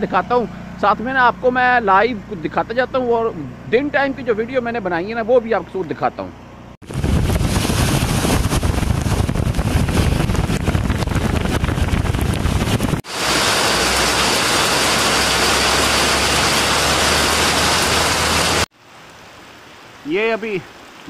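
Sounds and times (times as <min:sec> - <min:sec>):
car engine and tyre rumble: 0:06.5 - 0:18.7
water spray: 0:06.9 - 0:18.7
heavy rain pouring onto pavement: 0:07.3 - 0:19.0.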